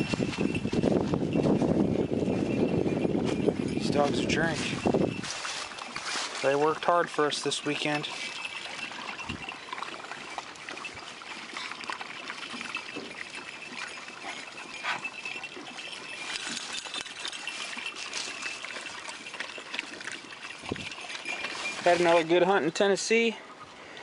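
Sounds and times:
dogs lapping water: 0:00.0 - 0:24.0
water trickling into dish: 0:06.8 - 0:22.3.

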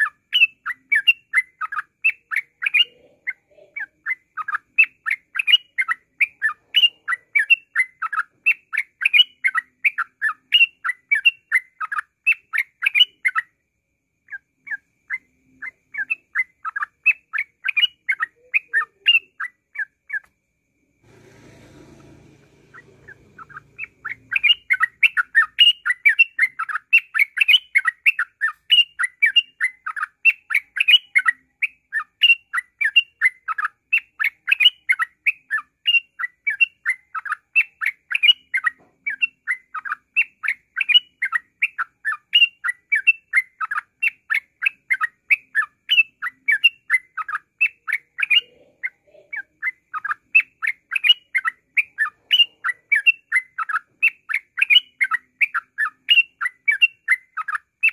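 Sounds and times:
bird singing fast chirps: 0:22.4 - 0:57.9.

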